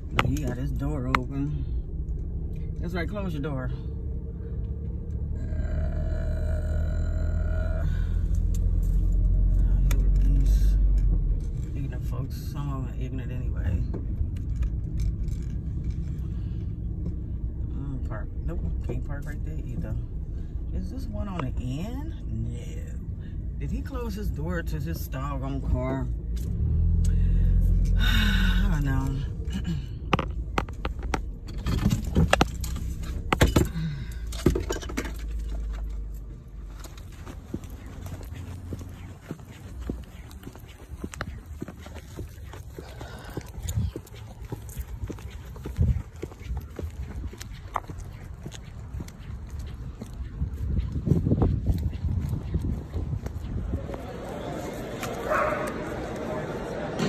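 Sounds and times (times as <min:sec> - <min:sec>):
car rumble inside cabin: 0:00.0 - 0:57.0
sharp clicks and knocks: 0:30.1 - 0:36.0.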